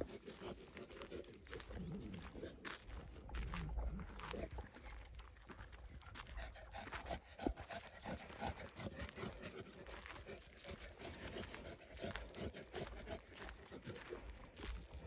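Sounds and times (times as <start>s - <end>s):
dog panting: 0.0s - 15.0s
footsteps crunching on gravel: 0.8s - 6.4s.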